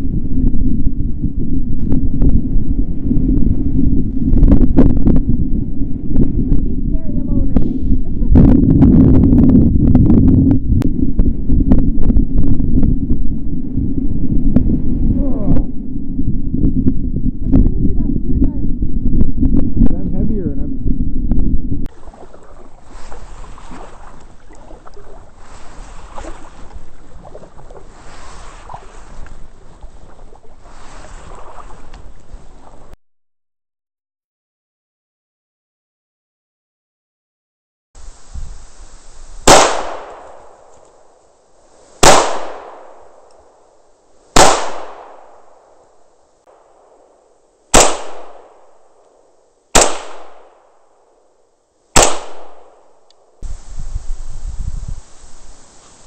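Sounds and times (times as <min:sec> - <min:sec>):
paddle dipping in water: 0:21.9 - 0:33.0
water splashing and dripping: 0:21.9 - 0:33.0
rifle shots with echo: 0:39.4 - 0:40.8, 0:42.0 - 0:43.6, 0:44.4 - 0:45.8, 0:47.7 - 0:49.2, 0:49.8 - 0:51.1, 0:52.0 - 0:53.4.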